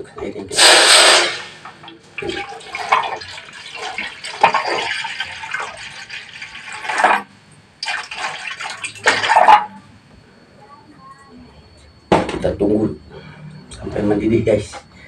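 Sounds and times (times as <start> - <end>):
water splashing into a wok: 0.6 - 7.2, 7.8 - 9.6.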